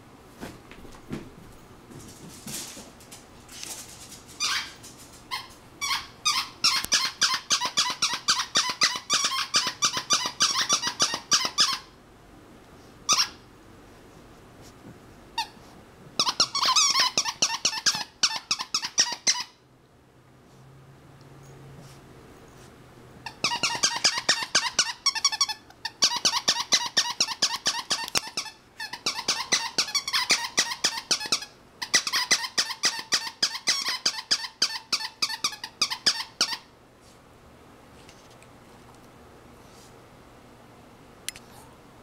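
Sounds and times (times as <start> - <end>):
squeaky toy squeaking: 4.4 - 11.9, 13.1 - 13.4, 15.4 - 15.6, 16.2 - 19.6, 23.2 - 36.7.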